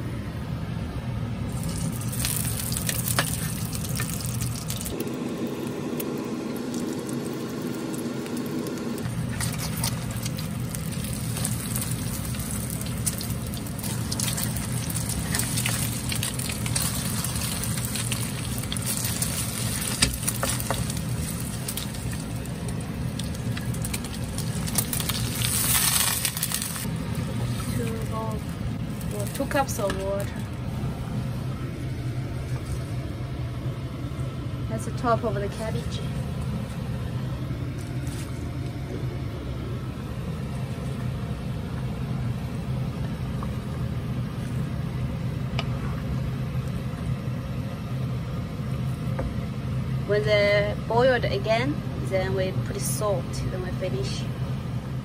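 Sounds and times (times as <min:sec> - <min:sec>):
low hum: 0:00.0 - 0:55.0
fat sizzling and popping in a pan: 0:01.5 - 0:30.4.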